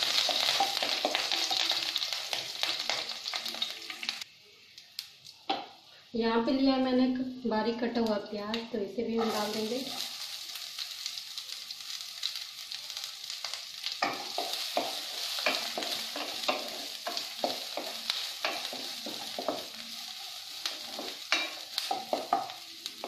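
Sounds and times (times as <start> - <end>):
onions sizzling in oil: 0.0 - 5.9, 7.9 - 23.0
spatula scraping pan: 9.2 - 10.0.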